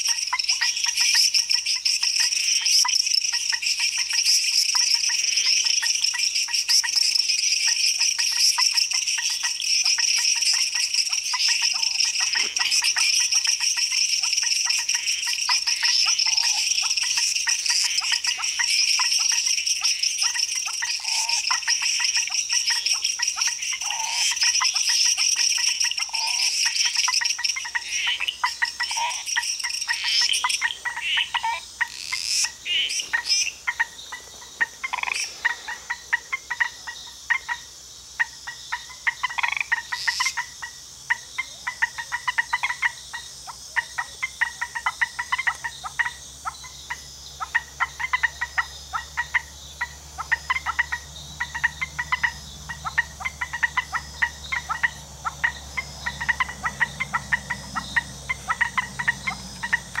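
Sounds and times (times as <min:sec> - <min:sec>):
louder higher frog calls: 0:00.0 - 1:00.0
treefrogs calling: 0:00.0 - 1:00.0.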